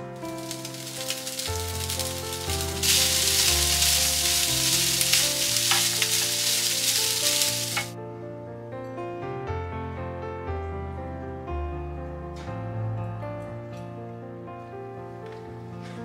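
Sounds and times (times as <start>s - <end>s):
soft piano music: 0.0s - 16.0s
rice sizzling in a frying pan: 0.2s - 8.0s.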